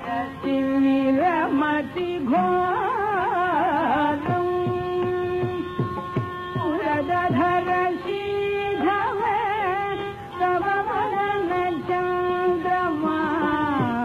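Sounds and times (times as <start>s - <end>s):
drum strokes: 4.2s - 7.7s.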